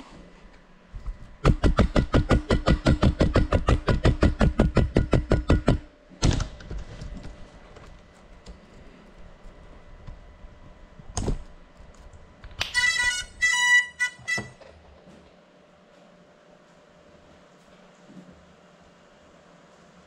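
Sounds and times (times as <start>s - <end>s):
fast even beat: 1.4s - 5.9s
sharp knocks: 1.4s - 6.9s.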